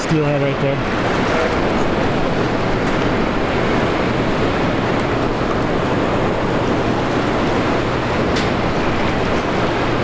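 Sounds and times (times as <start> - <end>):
fast-moving river water: 0.0 - 10.0
wind rushing: 0.8 - 10.0.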